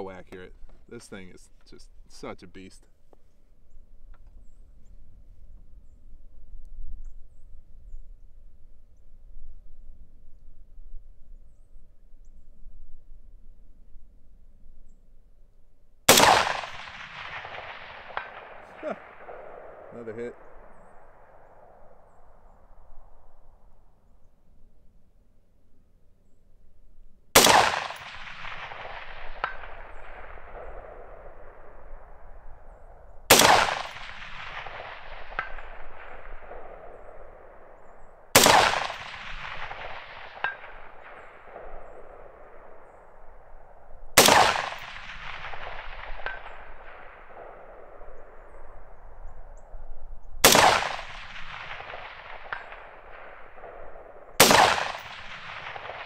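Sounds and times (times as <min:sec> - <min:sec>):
rifle shots with echo: 0:16.1 - 0:23.8, 0:27.4 - 0:56.0.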